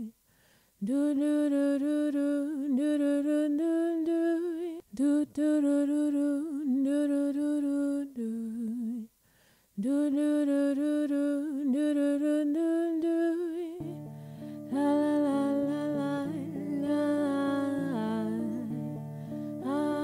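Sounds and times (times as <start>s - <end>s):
woman humming a melody: 9.8s - 20.0s
plucked guitar accompaniment: 13.8s - 20.0s.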